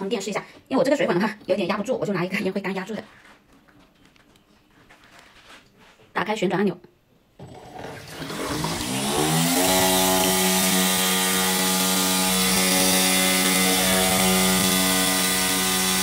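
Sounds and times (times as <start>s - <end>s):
water pump whining: 7.4s - 16.0s
water pushed through hose: 7.6s - 10.8s.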